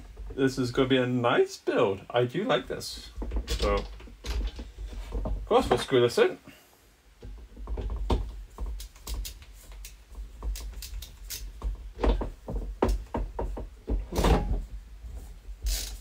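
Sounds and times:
computer hardware clicking and knocking: 7.2 - 14.6.

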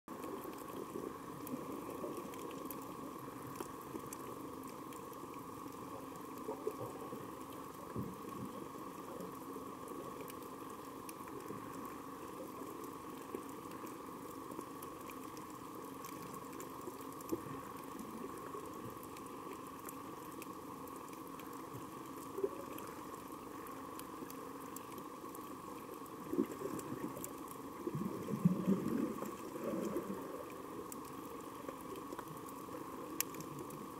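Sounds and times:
faint clicks and crackles: 0.1 - 33.9
bubbling: 25.8 - 33.9.

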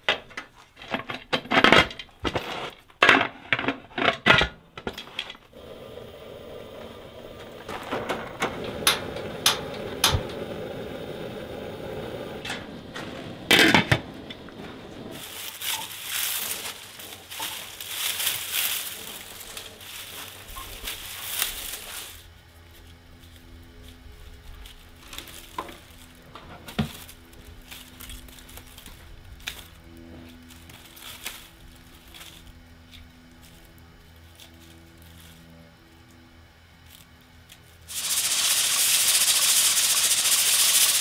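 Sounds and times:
gas burner flame rushing: 5.5 - 22.3, 37.9 - 41.0
metal pots clanking and scraping: 7.4 - 10.3, 12.4 - 20.7
dry garlic stalks rustling: 12.8 - 41.0.

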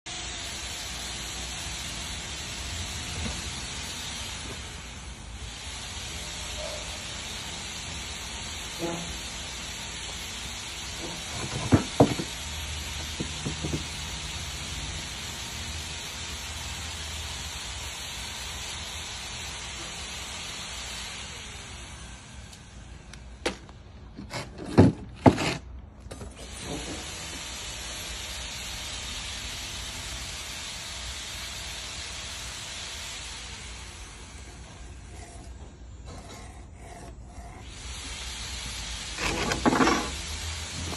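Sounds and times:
steady hiss: 0.1 - 23.9, 26.4 - 40.9
bricks and hand tools knocking: 11.3 - 12.4, 13.1 - 13.9.

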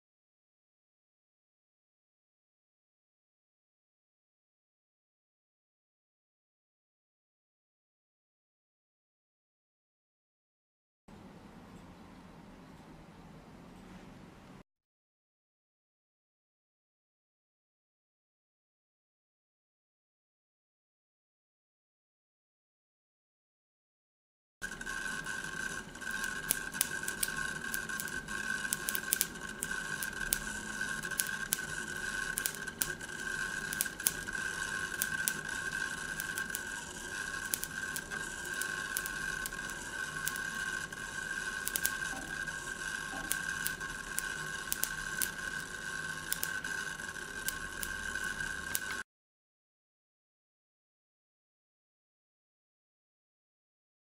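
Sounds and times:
crackling electrical clicks: 24.6 - 49.0
steady high whine: 24.6 - 49.0.

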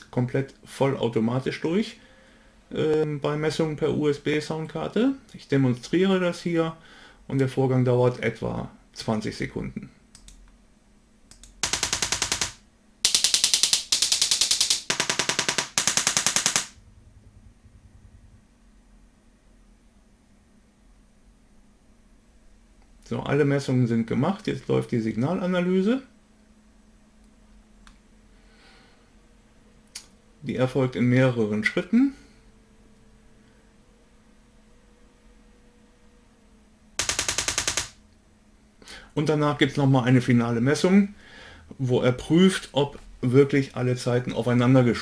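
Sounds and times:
faint low hum: 0.0 - 45.0
rapid test clicks from speakers: 11.3 - 16.8, 37.0 - 38.0.

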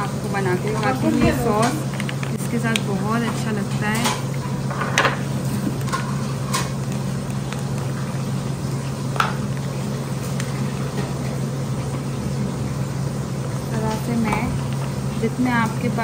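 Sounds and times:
plastic pouch crinkling and squelching: 5.4 - 10.9.

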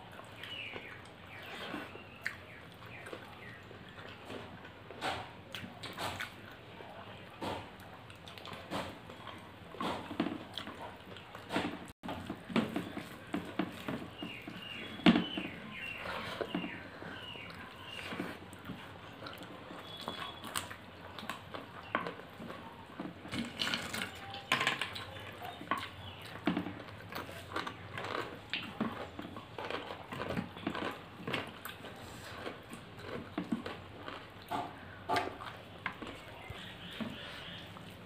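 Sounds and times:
wet chewing and mouth smacks: 0.0 - 6.6, 7.5 - 11.5, 25.0 - 38.0.

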